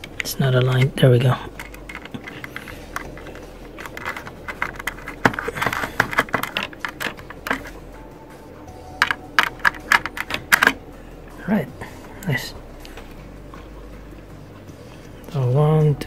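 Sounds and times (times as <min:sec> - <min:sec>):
screwdriver clicks and taps: 0:01.6 - 0:07.7.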